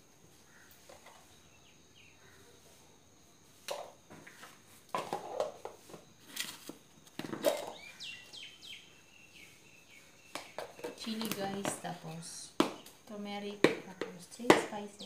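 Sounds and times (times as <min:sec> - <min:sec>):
plastic containers knocking and clattering: 0:03.6 - 0:08.0, 0:10.3 - 0:15.0.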